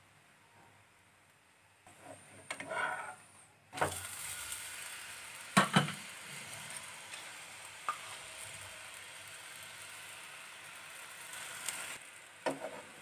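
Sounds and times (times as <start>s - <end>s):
flatbread sizzling on a pan: 1.9s - 13.0s
knocks against pan: 5.6s - 6.0s.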